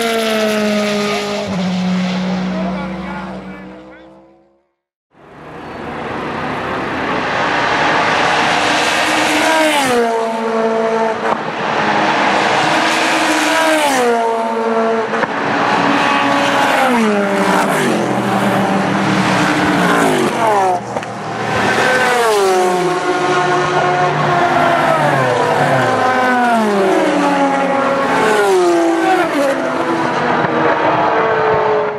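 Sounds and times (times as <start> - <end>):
race cars passing at speed: 0.0 - 4.6, 5.2 - 31.9.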